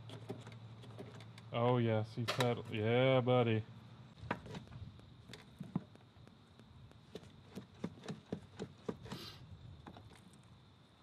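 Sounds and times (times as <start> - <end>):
short hiss: 9.0 - 9.5.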